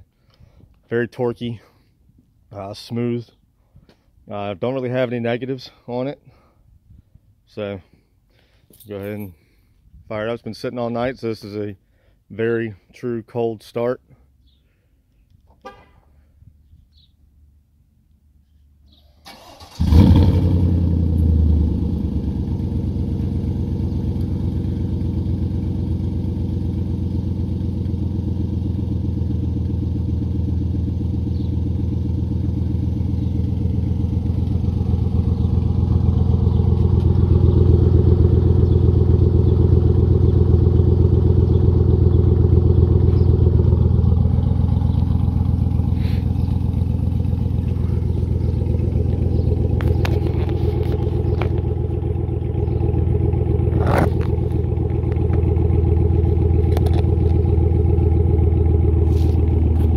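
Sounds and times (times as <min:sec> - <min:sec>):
engine cranking: 0:19.2 - 0:20.1, 0:42.3 - 0:57.5
engine idling: 0:19.3 - 0:59.9.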